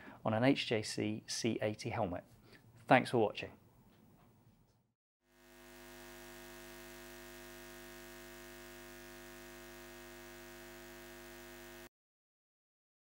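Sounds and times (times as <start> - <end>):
faint electronic hum: 5.3 - 11.9.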